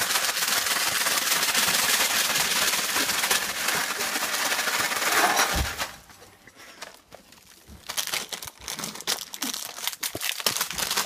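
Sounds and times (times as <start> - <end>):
plastic wrappers crinkling: 0.0 - 11.0
crackers crunching: 2.6 - 11.0.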